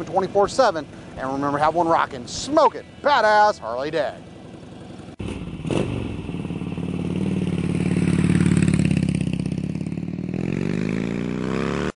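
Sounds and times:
motorcycle engine revving: 4.2 - 12.0.

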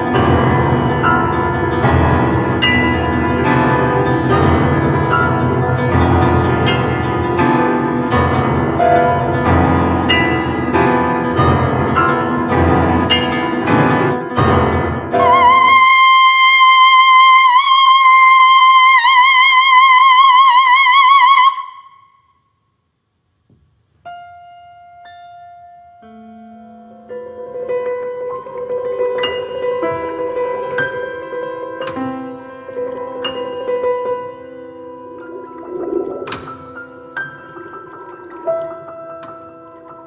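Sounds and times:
piano and instruments striking chords: 0.0 - 15.8, 24.0 - 40.0
soprano holding high note: 15.2 - 19.3.

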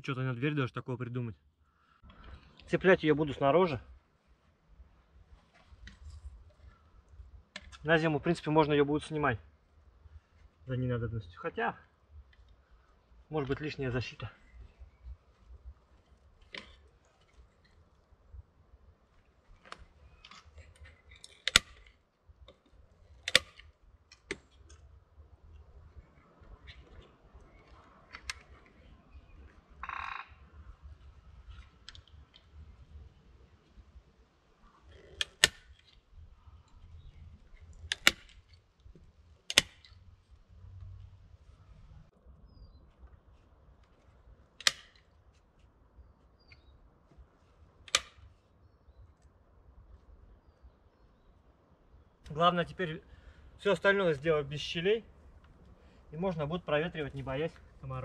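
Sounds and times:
faint bird chirps: 42.4 - 43.0, 45.9 - 46.9.

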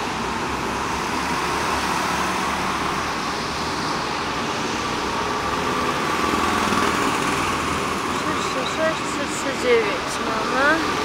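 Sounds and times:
go-kart engines droning: 4.0 - 11.0.

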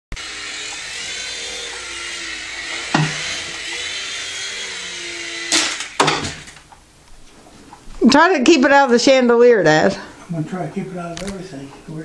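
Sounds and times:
toy helicopter motor whirring: 0.1 - 6.6.

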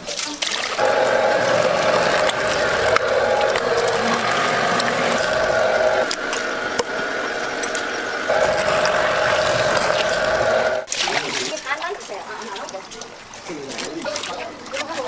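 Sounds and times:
fish-skinning machine whirring: 0.8 - 10.9.

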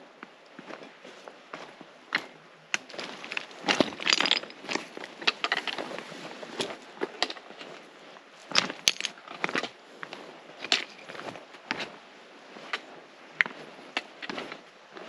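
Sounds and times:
footsteps crunching on trail: 2.8 - 7.9.

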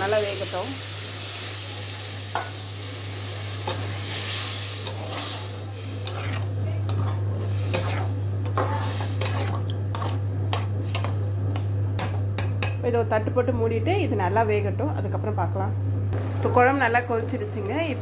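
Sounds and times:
curry sizzling in a pan: 0.0 - 12.8
metal spatula scraping a pan: 3.6 - 11.2.

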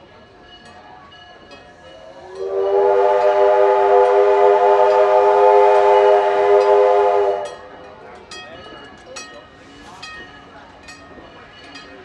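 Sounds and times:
steam whistle blast: 2.3 - 7.6.

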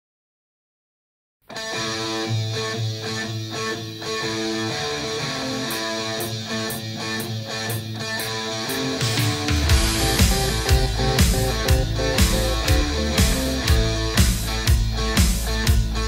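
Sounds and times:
background music with guitar: 1.4 - 16.0
light ticking beat: 6.2 - 16.0.

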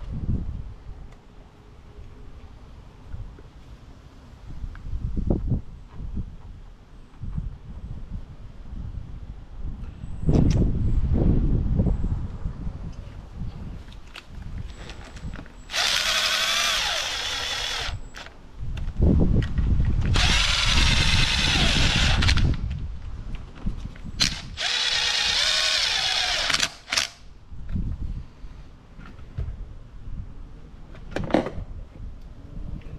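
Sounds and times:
cordless drill motor whine: 15.7 - 18.3, 20.1 - 22.6, 24.2 - 27.1.

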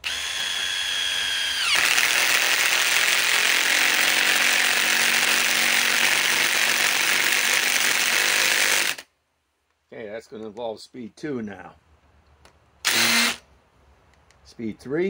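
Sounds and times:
impact driver hammering: 0.0 - 9.0
impact driver motor whining: 0.0 - 9.0, 12.8 - 13.4.

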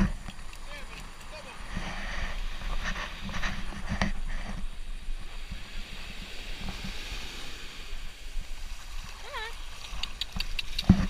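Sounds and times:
small waves breaking: 0.0 - 11.0
water splashes in shallows: 5.2 - 11.0.

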